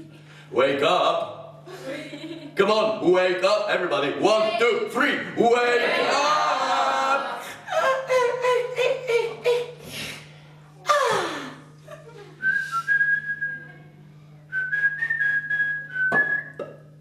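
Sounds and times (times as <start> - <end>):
man whistling high notes: 12.4 - 13.7, 14.6 - 16.8.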